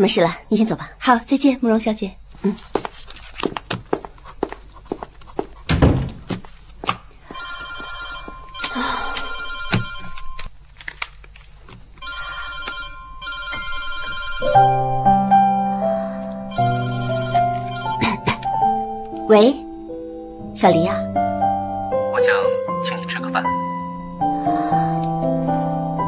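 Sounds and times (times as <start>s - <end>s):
thump: 5.7s - 6.3s
mobile phone ringing: 7.3s - 10.5s, 12.0s - 15.6s, 16.5s - 26.0s
background music: 14.4s - 26.0s.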